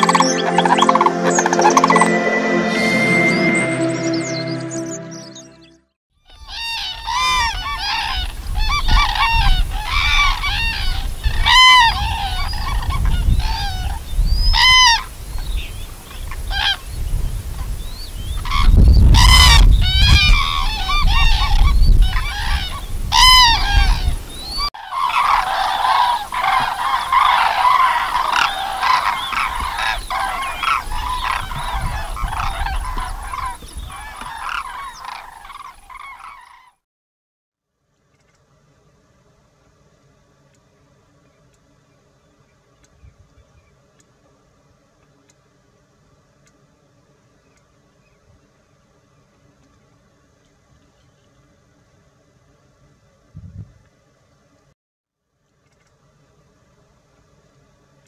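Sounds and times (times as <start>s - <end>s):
cranes bugling: 6.4s - 36.7s.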